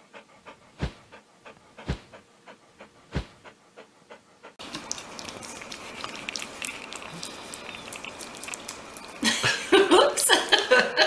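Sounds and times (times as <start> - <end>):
puppy lapping wet food: 4.6 - 9.6.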